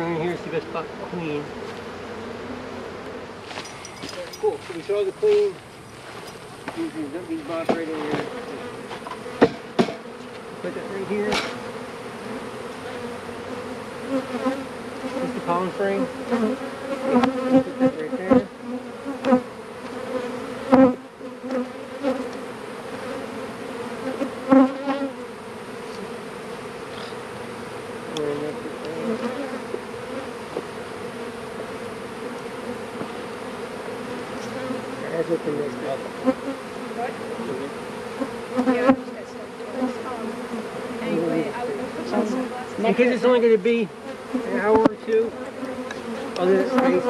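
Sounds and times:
honeybees buzzing: 0.0 - 47.0
sharp knocks: 9.0 - 10.0.

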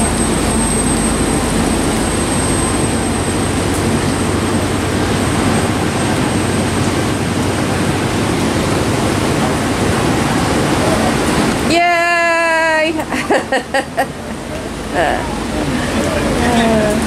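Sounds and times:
car engines passing: 0.0 - 11.8, 13.0 - 17.0
ocean surf: 0.0 - 17.0
rain: 0.0 - 17.0.

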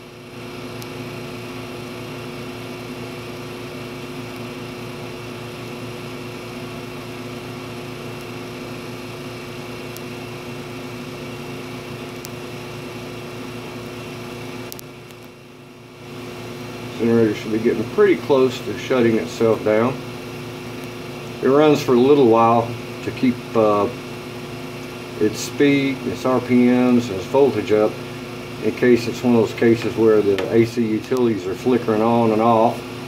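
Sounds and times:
generator humming: 0.0 - 33.0.

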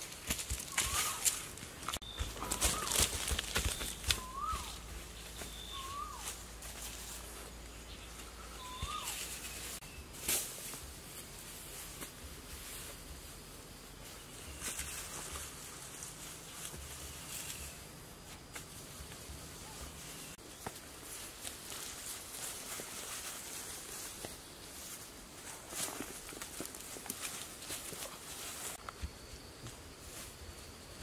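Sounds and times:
grass sods rustling: 0.0 - 31.0
bird whistled calls: 0.7 - 1.4, 3.7 - 6.4, 8.4 - 10.0.

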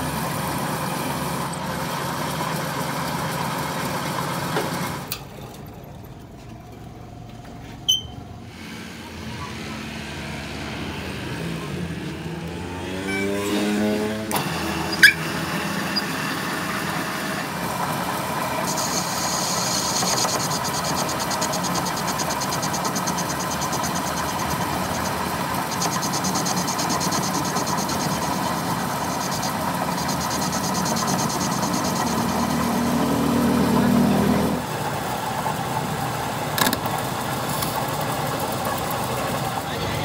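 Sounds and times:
lathe machine hum: 13.5 - 39.7
high hissing cutting noise: 18.5 - 33.0.

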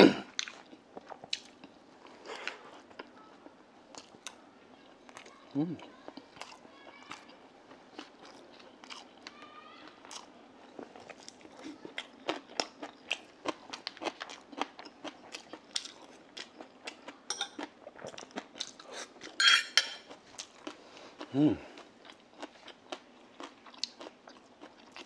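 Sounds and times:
chewing and lip smacks: 0.4 - 3.1, 20.1 - 25.0.

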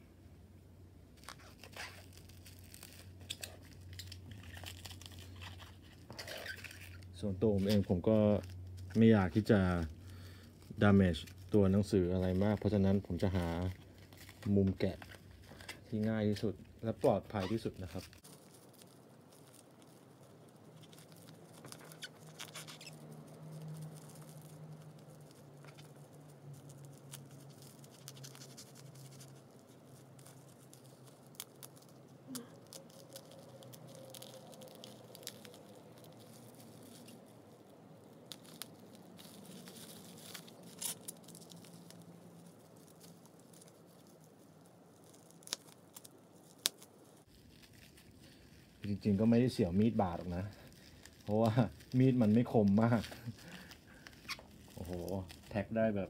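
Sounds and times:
knife cutting bubble wrap: 1.2 - 56.0.

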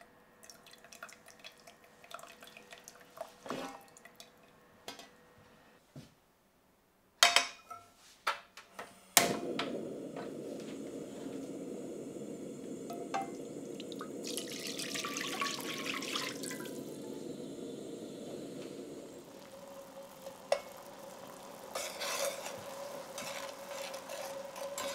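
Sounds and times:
sauce pouring and splashing: 0.4 - 4.2, 11.5 - 24.9
gas burner flame rushing: 9.1 - 24.9
gas stove igniter click: 9.2 - 10.4.

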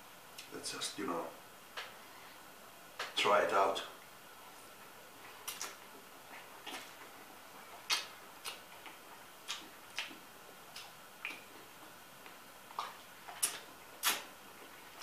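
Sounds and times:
wet chewing smacks: 5.3 - 15.0.

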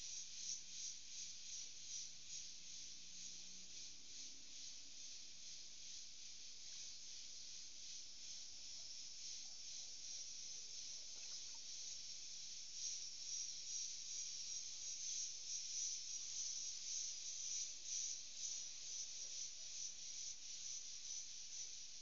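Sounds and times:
insect chorus hissing: 0.0 - 22.0.

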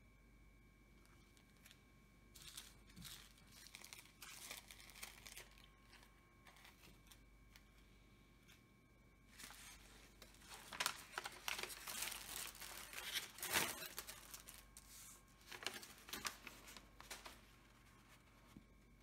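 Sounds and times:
plastic bag crinkling: 1.4 - 7.3, 9.4 - 18.3.

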